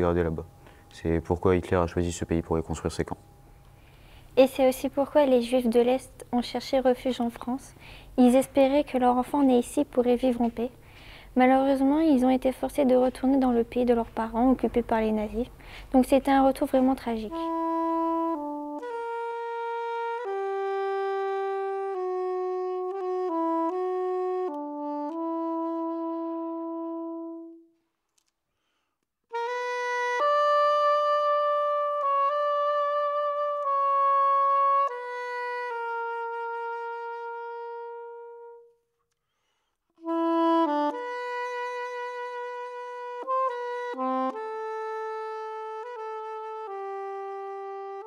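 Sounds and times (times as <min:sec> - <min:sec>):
solo woodwind slow melody: 0:17.2 - 0:27.8, 0:29.3 - 0:38.8, 0:40.0 - 0:48.0.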